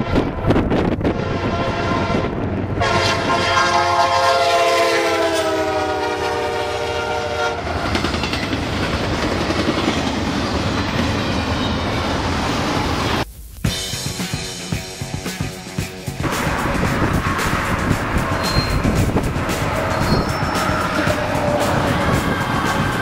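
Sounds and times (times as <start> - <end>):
locomotive air horn: 0.0 - 0.4, 1.0 - 7.8, 16.3 - 23.0
train wheels rumbling and clacking: 0.0 - 23.0.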